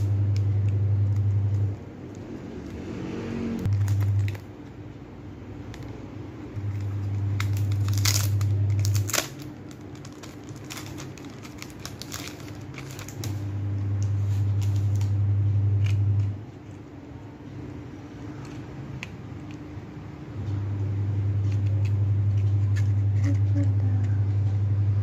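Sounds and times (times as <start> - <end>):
loud low hum: 0.0 - 25.0
plastic packaging crinkling: 3.7 - 4.5, 6.6 - 15.2.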